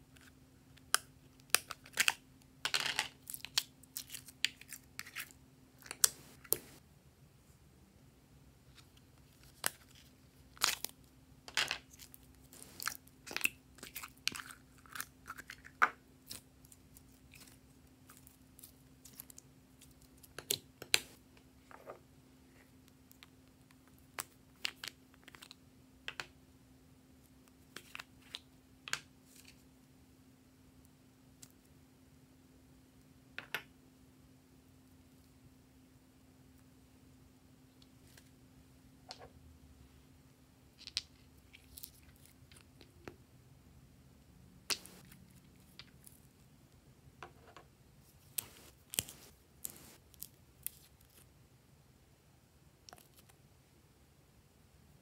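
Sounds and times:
soft slime squishes: 0:11.9 - 0:25.5, 0:48.0 - 0:51.3.

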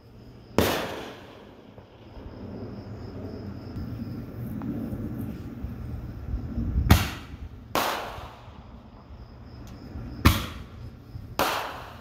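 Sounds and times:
firework bangs with echo: 0:00.6 - 0:02.0, 0:06.9 - 0:08.6, 0:10.2 - 0:10.7, 0:11.3 - 0:12.0.

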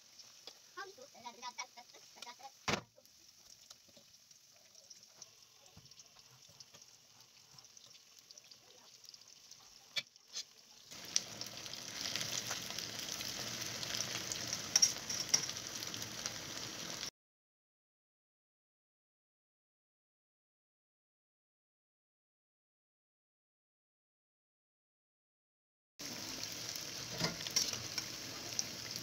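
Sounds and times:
deep-frying sizzle: 0:00.0 - 0:17.1, 0:26.0 - 0:29.0.

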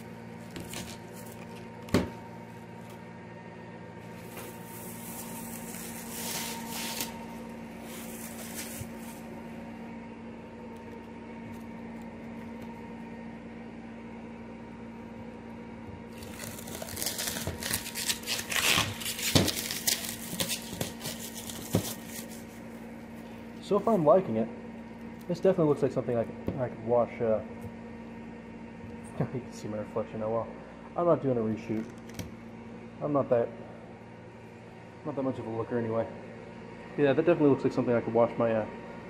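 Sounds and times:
plastic wrap crinkling: 0:04.8 - 0:09.2, 0:16.1 - 0:22.7.

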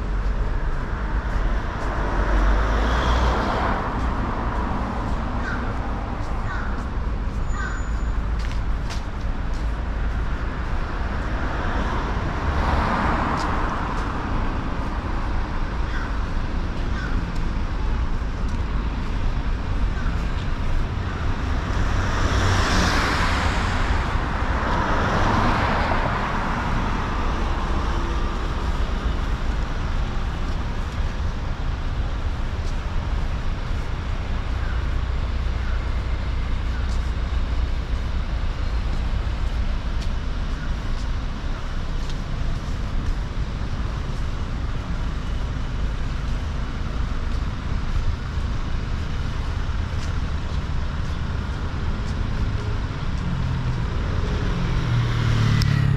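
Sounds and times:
cars passing by: 0:00.0 - 0:55.9
traffic rumble: 0:00.0 - 0:55.9.

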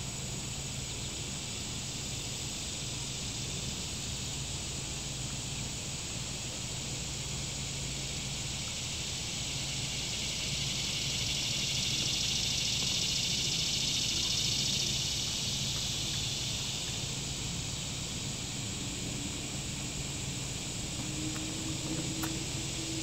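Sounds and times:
insects buzzing shrill drone: 0:00.0 - 0:23.0
faint low hum: 0:09.9 - 0:23.0.

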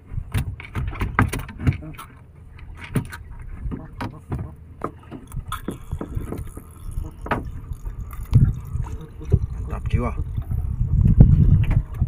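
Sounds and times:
water and wind rumble: 0:00.0 - 0:12.0
thump in wooden boat: 0:00.3 - 0:02.0, 0:02.7 - 0:05.3.

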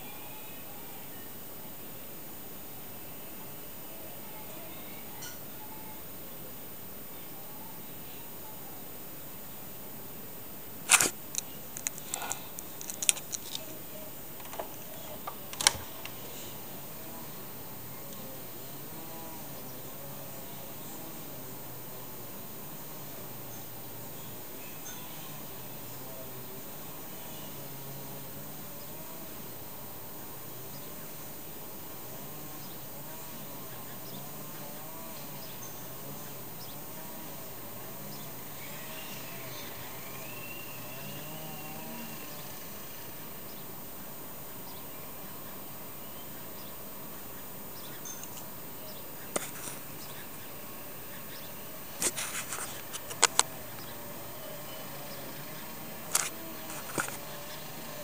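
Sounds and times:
faint steady hiss: 0:00.0 - 0:58.0
distant string trimmer buzzing: 0:10.8 - 0:44.8, 0:49.2 - 0:58.0.

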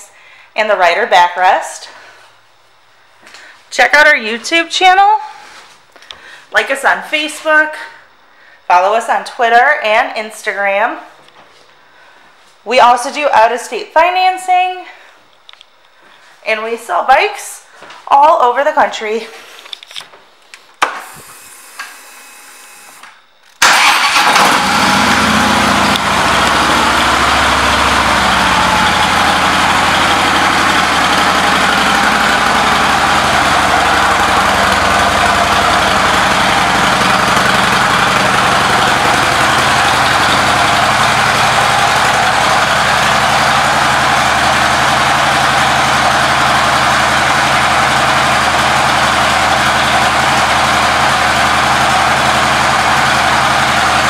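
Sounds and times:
motorcycle engine starting and idling: 0:23.6 - 0:54.0.

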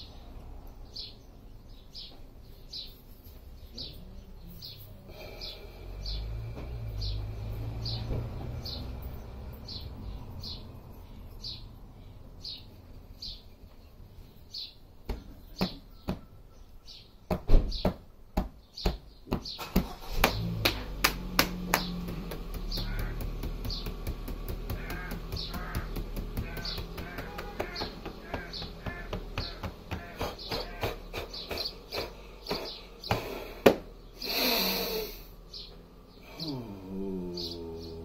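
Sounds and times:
small bird chirping: 0:00.0 - 0:18.0, 0:18.6 - 0:20.8, 0:21.4 - 0:38.0
hands tapping on body: 0:15.0 - 0:16.2, 0:20.2 - 0:33.9.

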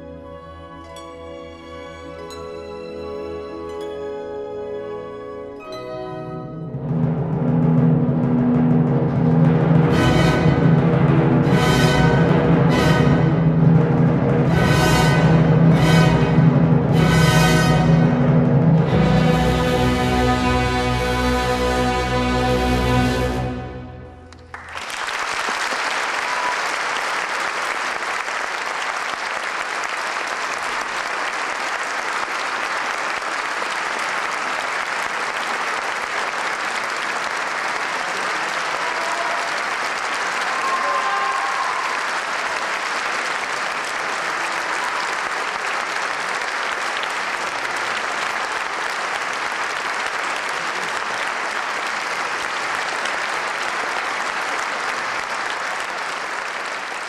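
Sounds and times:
orchestra chord: 0:04.9 - 0:24.5
audience applauding: 0:24.3 - 0:57.0.

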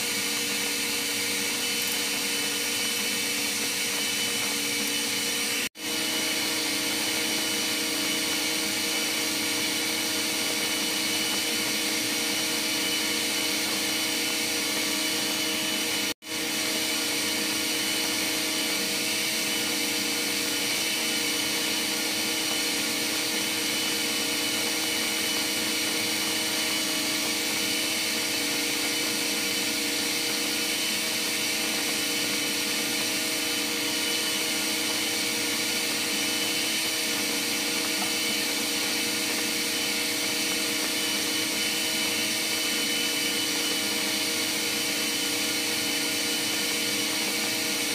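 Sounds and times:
engine room machinery drone: 0:00.0 - 0:44.1.

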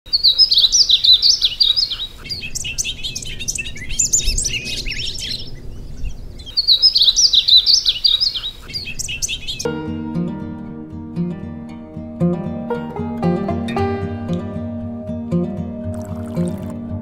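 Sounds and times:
songbirds chirping: 0:00.1 - 0:09.7.

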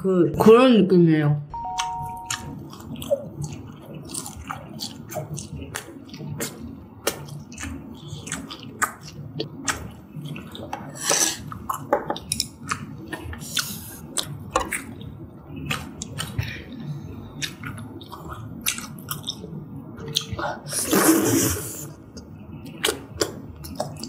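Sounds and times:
chewing and mouth clicks: 0:01.8 - 0:20.4, 0:22.1 - 0:24.0.

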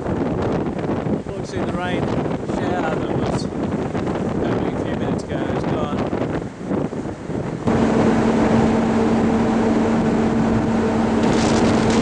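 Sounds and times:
wind and water rushing: 0:00.0 - 0:12.0
ferry engine low drone: 0:07.5 - 0:12.0.

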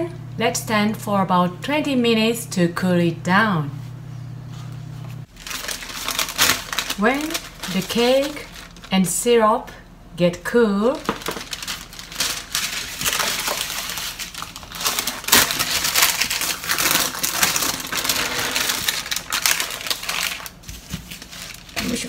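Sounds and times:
baking paper rustling and crackling: 0:05.2 - 0:09.1, 0:10.9 - 0:22.0.

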